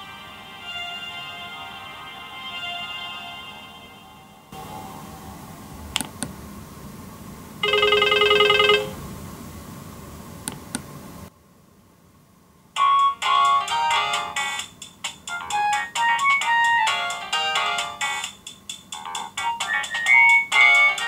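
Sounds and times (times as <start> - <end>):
phone ringtones: 7.6 - 9.0.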